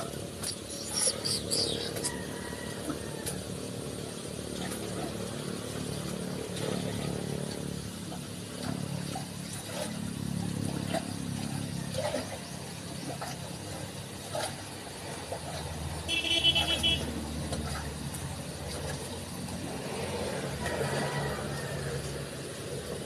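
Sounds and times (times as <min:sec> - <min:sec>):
engine running: 0:00.0 - 0:23.0.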